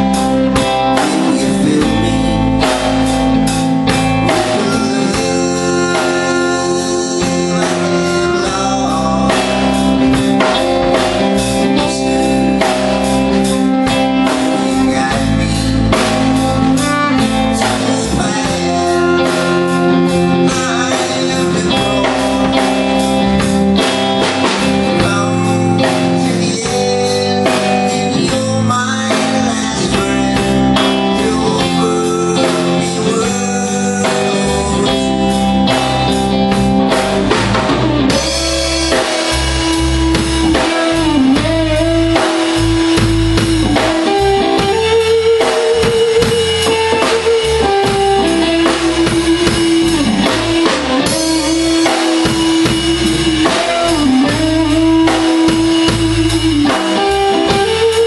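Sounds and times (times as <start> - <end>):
drum kit beat: 0.0 - 58.0
electric guitars: 0.0 - 58.0
person singing: 0.0 - 58.0
saxophone: 13.5 - 23.2.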